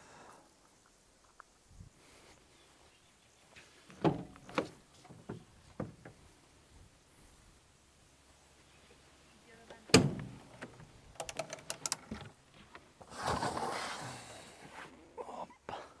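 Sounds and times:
scraping rustle: 11.7 - 15.0.

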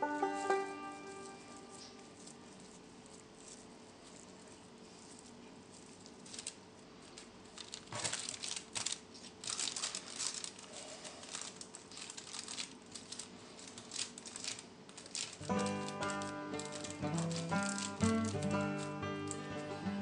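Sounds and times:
baking paper crinkling: 0.0 - 20.0.

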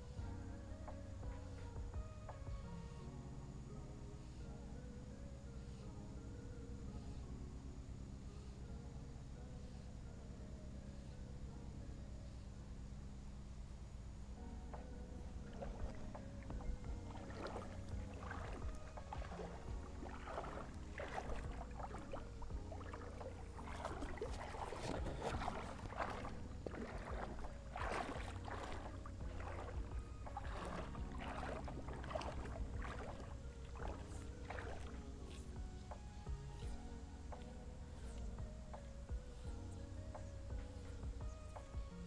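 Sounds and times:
low steady rumble: 6.0 - 42.0
water sloshing and splashing: 15.2 - 36.0.

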